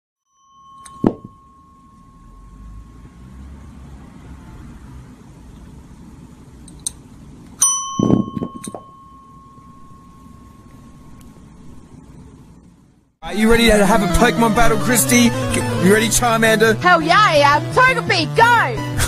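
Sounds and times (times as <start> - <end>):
desk service bell ringing: 0.3 - 3.4, 7.6 - 11.2.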